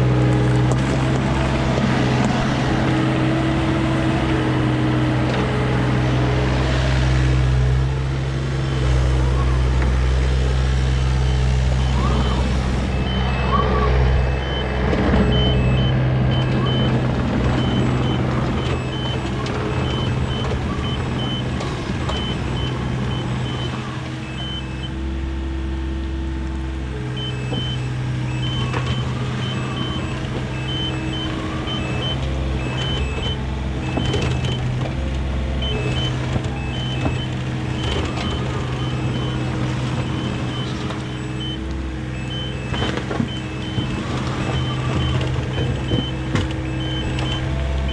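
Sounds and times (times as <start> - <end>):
diesel engine under load: 0.0 - 47.9
hydraulics whining: 0.0 - 47.9
rapid high alarm beeping: 11.3 - 17.0.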